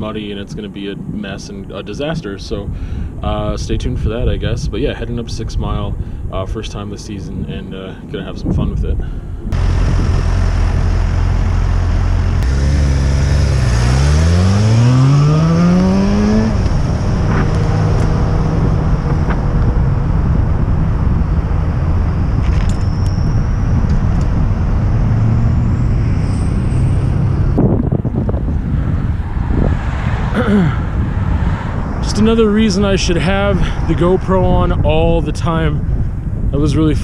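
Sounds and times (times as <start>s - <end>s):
wind and road noise: 0.0s - 37.0s
motorbike engine accelerating: 9.5s - 31.4s.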